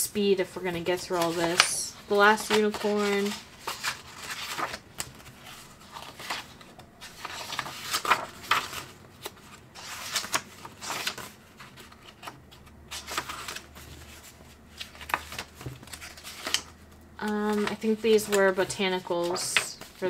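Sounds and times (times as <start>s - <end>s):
paper pages turning: 1.0s - 20.0s.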